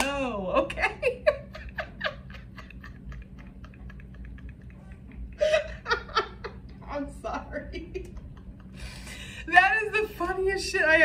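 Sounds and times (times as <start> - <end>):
woman laughing breathlessly: 1.2 - 6.6, 8.0 - 9.5.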